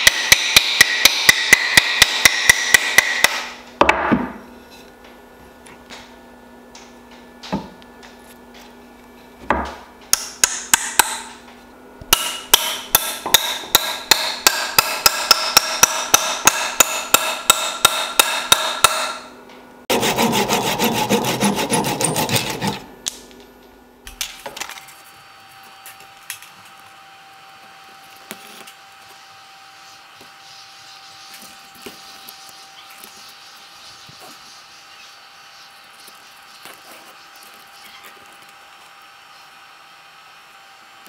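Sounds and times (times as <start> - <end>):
hammer striking metal wedge: 0.0 - 4.0, 10.1 - 11.4, 12.1 - 19.3
tool scraping wood: 19.9 - 22.9, 28.0 - 39.5.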